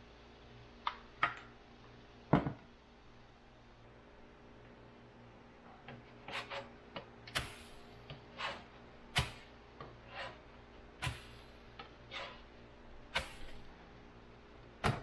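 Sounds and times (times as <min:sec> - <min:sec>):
spatula scraping griddle: 0:06.1 - 0:06.8, 0:07.4 - 0:12.5.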